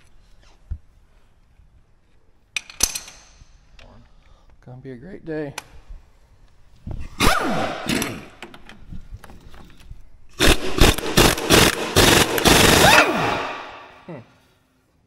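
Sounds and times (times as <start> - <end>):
air impact wrench hammering: 10.3 - 14.0.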